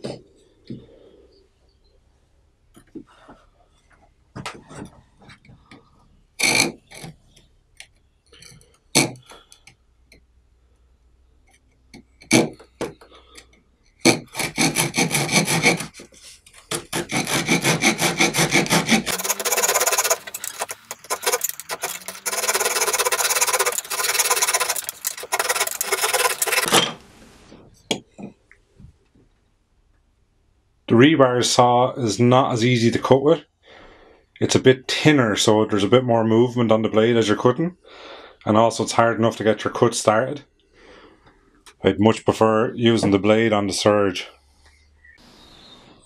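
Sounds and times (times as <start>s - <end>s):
saw rasping through wood: 14.0s - 16.1s, 16.7s - 26.7s
knocks and short scrapes: 14.0s - 27.9s.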